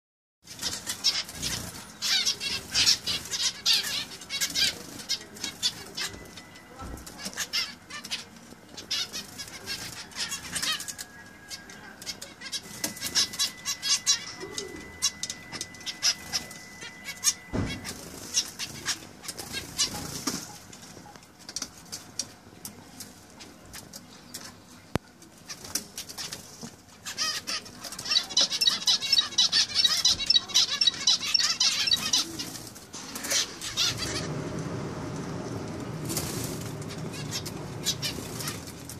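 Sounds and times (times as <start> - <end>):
wings fluttering: 0.5 - 6.4, 12.1 - 22.4, 31.8 - 38.9
finches chirping: 0.5 - 21.1, 27.0 - 32.6, 36.0 - 38.9.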